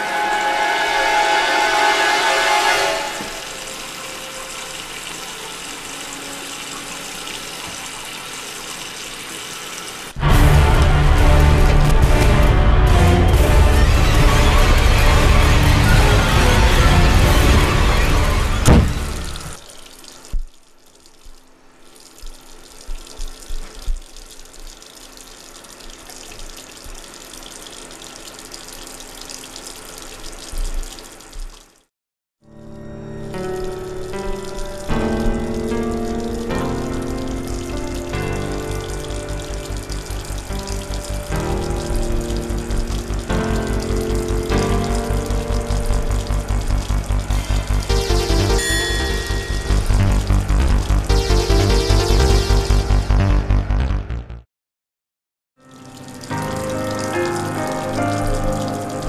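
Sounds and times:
tap water running into sink: 3.2 - 13.4, 18.6 - 31.9, 33.4 - 51.2, 55.8 - 59.0
loud music: 44.8 - 54.4.

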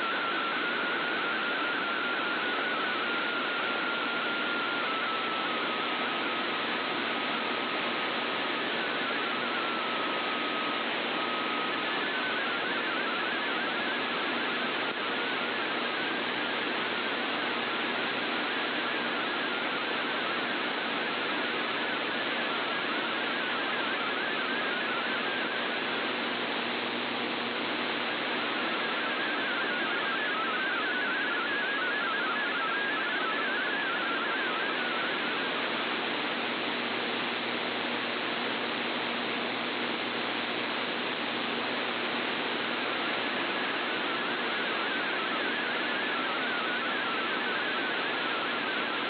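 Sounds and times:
static hiss: 0.0 - 49.0
digital data signal tones: 27.8 - 36.4.

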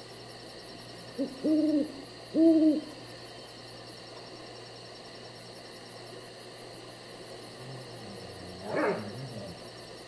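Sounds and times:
low wavering animal call: 7.6 - 9.7.

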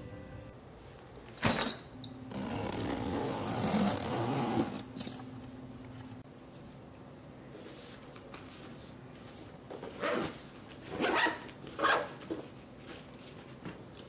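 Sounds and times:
fabric bag rustling and scraping: 2.3 - 4.8.

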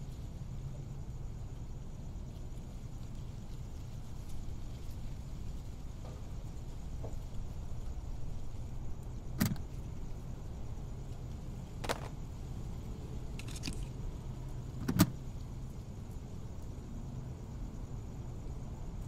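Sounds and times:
low steady hum: 0.0 - 19.0
plastic cassette tapes clacking: 11.8 - 12.2.

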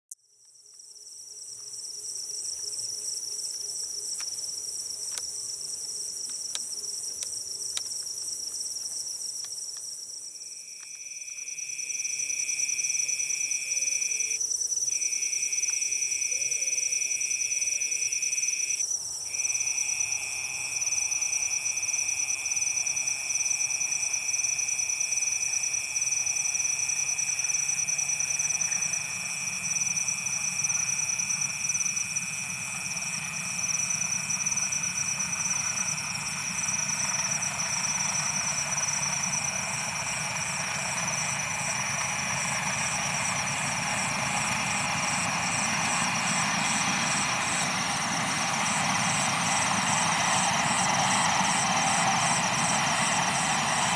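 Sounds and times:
crickets trilling: 0.2 - 53.9
lower insect trill: 0.2 - 53.9
distant train rumble: 19.3 - 53.9.

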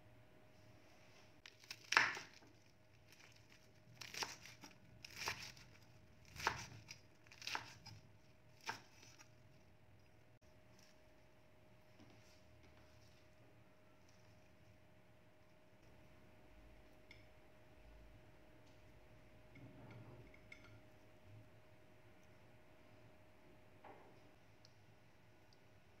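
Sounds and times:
cleaver chopping lettuce on wood: 1.6 - 2.4, 4.0 - 8.0, 8.6 - 9.2.

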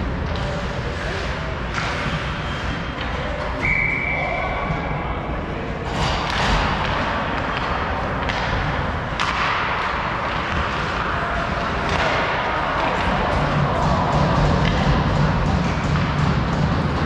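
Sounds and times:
puck and sticks knocking: 5.9 - 17.0.

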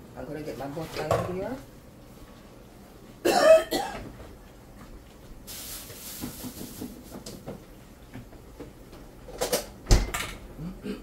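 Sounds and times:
soft hiss: 5.4 - 7.4.

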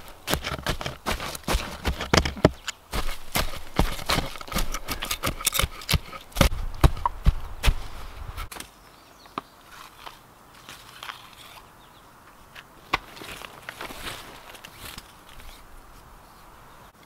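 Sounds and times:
dry wood knocking and cracking: 0.0 - 7.8
heavy thumps: 0.0 - 8.5.

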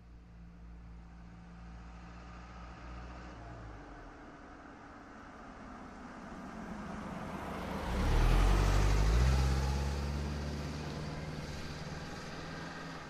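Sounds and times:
car driving past: 5.6 - 13.0.

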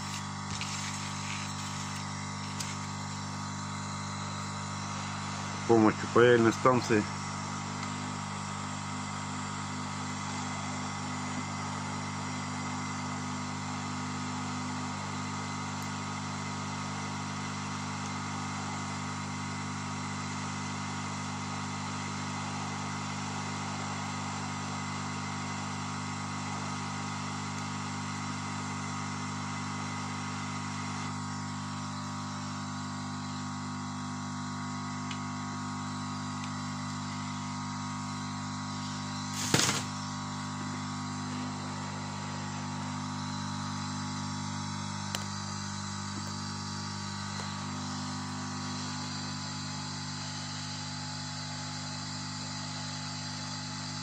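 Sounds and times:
hot-air tool fan whirring: 0.0 - 54.0.

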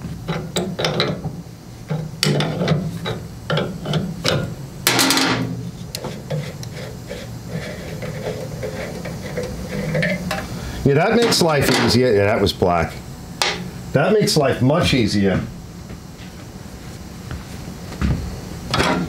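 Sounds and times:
steady low hum: 0.0 - 19.0
tools clicking and knocking: 0.3 - 1.3.

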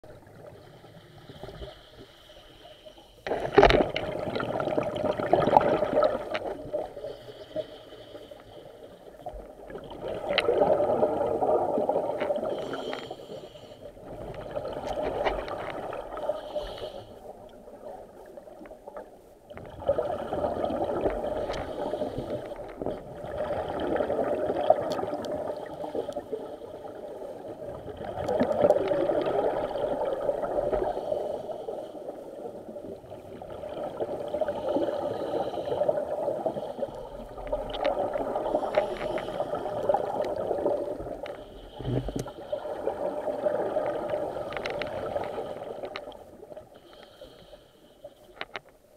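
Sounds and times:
gurgling rush of bubbles: 3.3 - 7.0, 9.4 - 12.8, 19.5 - 26.1, 26.9 - 31.1, 35.9 - 46.2
diver breathing through regulator: 12.4 - 14.0, 16.2 - 17.2, 34.5 - 37.3, 38.4 - 39.9, 46.8 - 48.2.

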